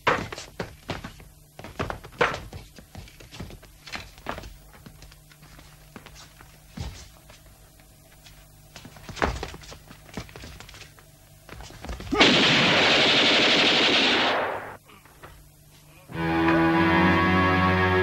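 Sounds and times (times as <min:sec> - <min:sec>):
automatic gunfire: 0:12.2 - 0:14.8.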